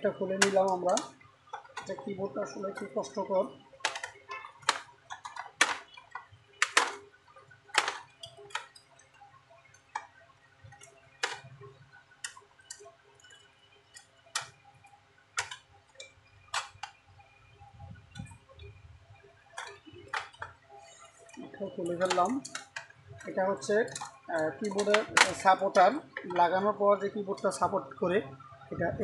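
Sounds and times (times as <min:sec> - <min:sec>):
sharp plastic clicks and snaps: 0:03.8 - 0:07.0.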